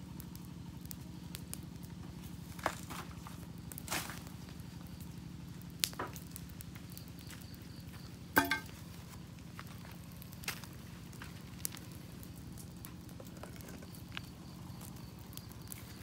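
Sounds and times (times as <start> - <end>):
campfire crackling: 0.0 - 16.0
sharp pops of burning wood: 0.0 - 16.0.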